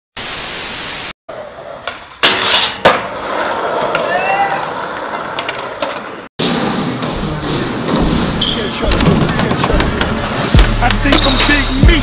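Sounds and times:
skateboard clacks: 1.3 - 6.2, 8.8 - 12.0
skateboard wheels rolling: 1.3 - 11.4.

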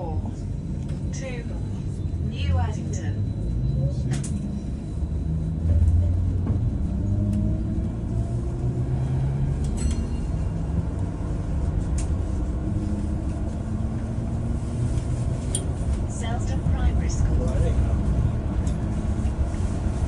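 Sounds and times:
bus cabin rumble: 0.0 - 20.0.

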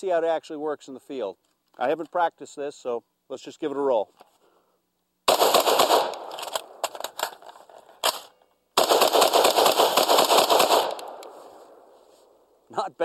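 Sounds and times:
rifle firing rapid shots: 5.3 - 6.8, 8.8 - 11.3
magazine change clicks: 5.3 - 11.4.

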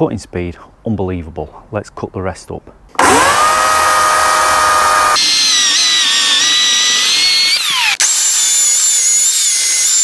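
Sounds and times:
electric chainsaw cutting log: 3.0 - 10.0.

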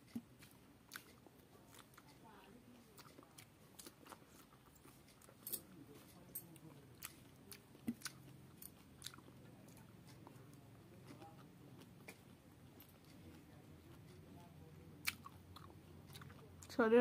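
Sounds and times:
chewing pineapple: 0.0 - 17.0
mouth smacks and crunches: 0.1 - 2.2, 7.0 - 10.4.

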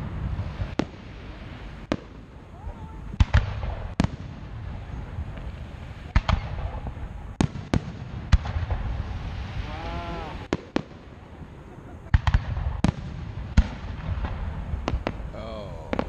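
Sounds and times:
fireworks booming: 0.0 - 16.0
steady low rumble: 0.0 - 16.0.

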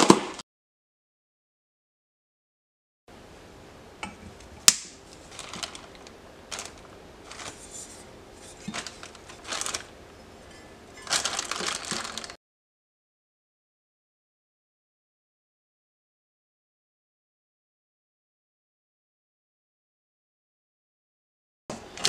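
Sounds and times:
plastic bags rustling: 4.9 - 12.4
metal parts clattering: 5.3 - 9.9, 11.0 - 12.4.

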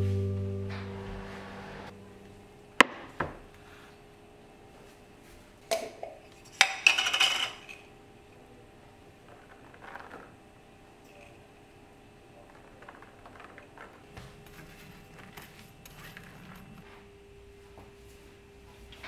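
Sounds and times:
guitar chord: 0.0 - 2.3
kitchen clinks and knocks: 5.7 - 7.9.

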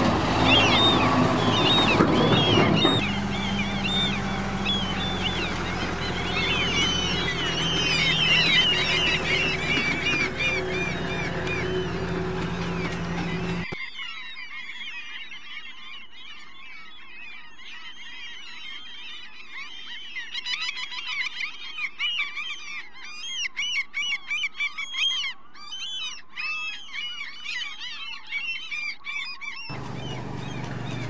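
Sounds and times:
chorus of frogs chirping: 0.0 - 19.1, 29.7 - 31.0.

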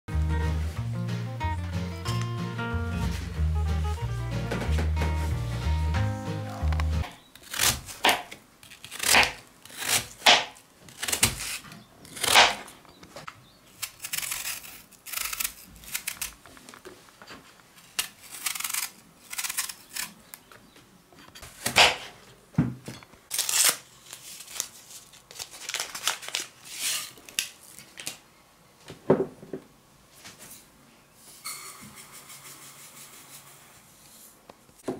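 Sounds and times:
knife cutting apple: 6.6 - 12.7, 13.8 - 16.4, 17.8 - 20.2, 21.4 - 22.2.

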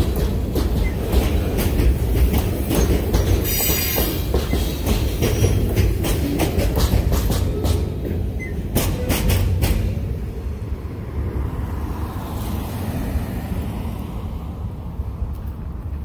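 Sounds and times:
train wheels clacking over rail joints: 0.0 - 10.3.

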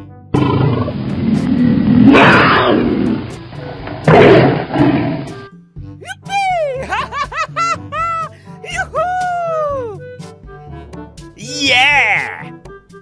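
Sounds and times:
faint background music: 0.0 - 13.0
tiger roaring: 0.4 - 5.4.

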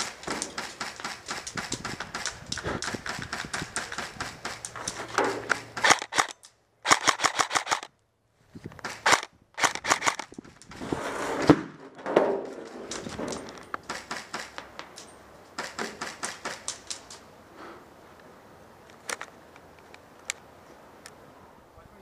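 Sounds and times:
airsoft rifle firing bursts: 5.7 - 7.9, 8.8 - 10.3.

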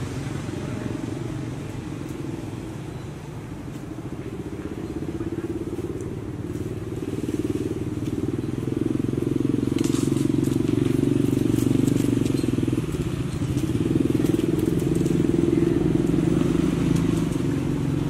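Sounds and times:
small engine running: 4.3 - 18.0.

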